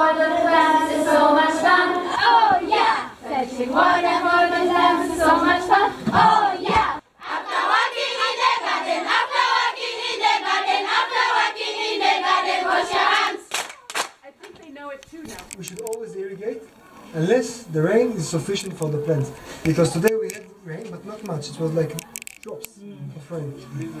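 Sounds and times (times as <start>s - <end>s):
children singing in chorus: 0.0s - 13.5s.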